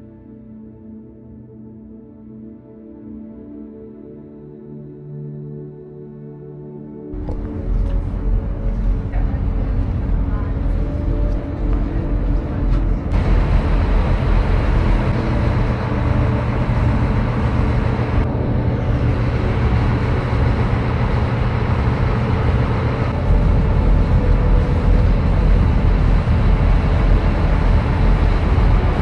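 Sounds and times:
large engine running: 7.2 - 29.0.

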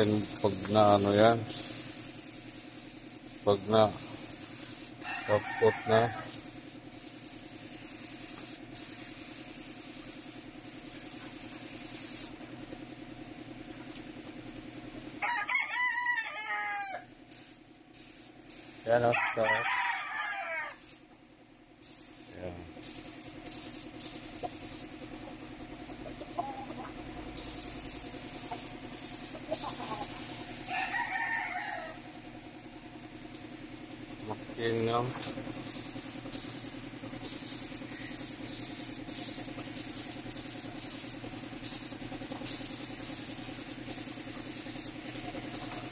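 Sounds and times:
spray gun air hiss: 0.0 - 5.1, 6.0 - 12.4, 17.3 - 19.0, 20.8 - 21.0, 21.8 - 24.9, 27.4 - 30.8, 35.6 - 45.9
steady low hum: 0.0 - 5.1, 5.8 - 15.2, 17.0 - 19.1, 20.0 - 45.9
air compressor running: 0.0 - 15.2, 17.0 - 19.5, 20.4 - 45.9
rooster crowing: 5.0 - 6.4, 15.2 - 17.1, 19.0 - 21.0, 29.6 - 32.1, 37.7 - 38.4.

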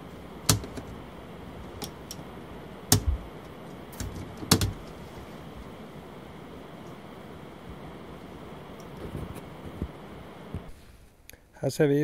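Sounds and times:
circuit breakers snapping clicks: 0.4 - 1.0, 2.9 - 4.9.

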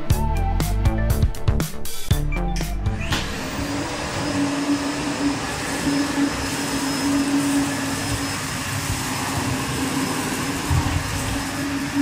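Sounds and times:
vacuum cleaner running: 2.9 - 12.0.

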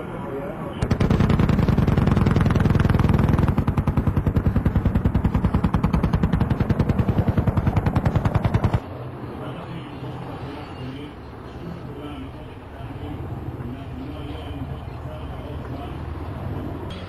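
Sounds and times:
machine gun firing burst: 0.8 - 8.8.

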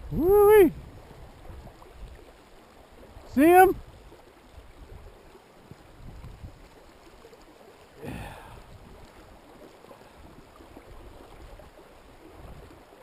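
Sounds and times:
river flowing over cobbles: 0.0 - 13.0.

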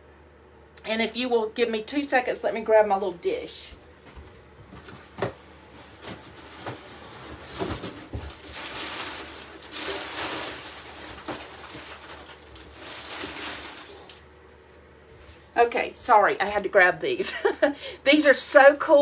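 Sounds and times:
rustling: 4.7 - 14.2.

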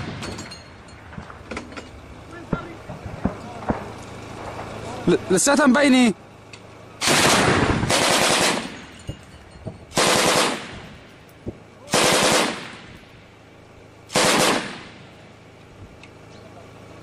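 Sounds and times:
automatic weapon fire bursts: 7.0 - 8.9, 9.9 - 10.9, 11.9 - 12.9, 14.1 - 15.0.

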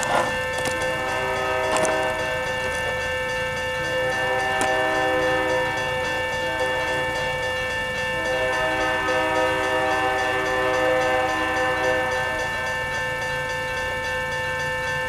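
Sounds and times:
locomotives rumbling low: 0.0 - 7.1
locomotive air horn blowing: 0.0 - 13.1
crossing warning bell dinging: 0.0 - 15.0.

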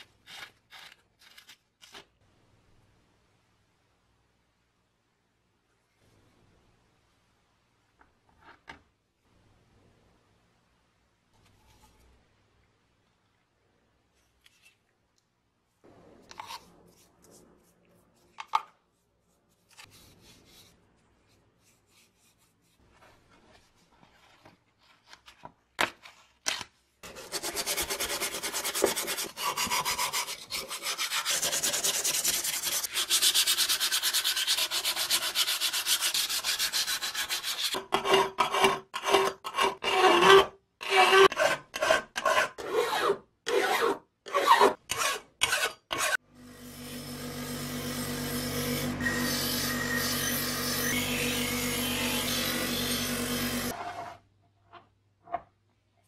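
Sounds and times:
sandpaper rubbing rusty metal: 27.0 - 37.8.

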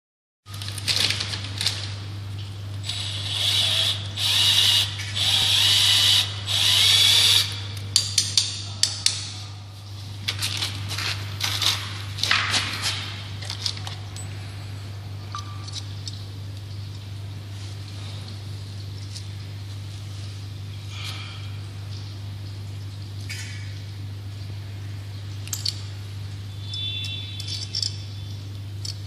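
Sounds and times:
cordless drill bursts: 2.9 - 7.5.

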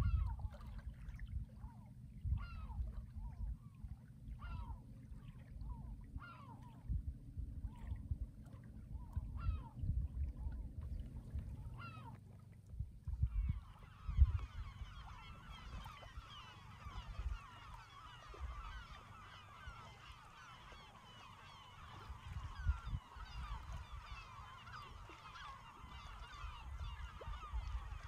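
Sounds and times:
flock of birds honking: 13.4 - 28.0.

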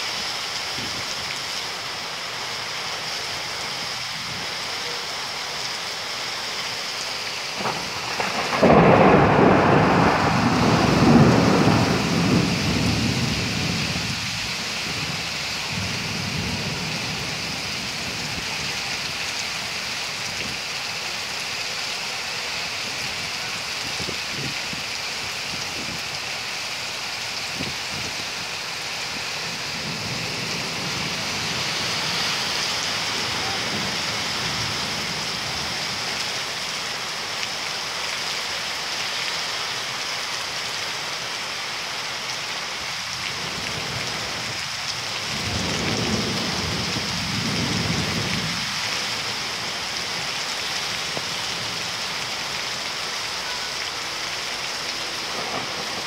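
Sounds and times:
heavy rain hissing: 0.0 - 56.0
thunder clap: 7.6 - 13.2, 55.3 - 56.0.

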